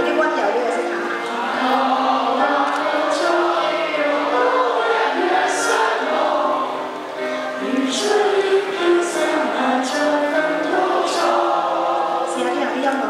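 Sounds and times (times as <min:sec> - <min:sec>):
girls singing gospel song: 0:01.2 - 0:13.0.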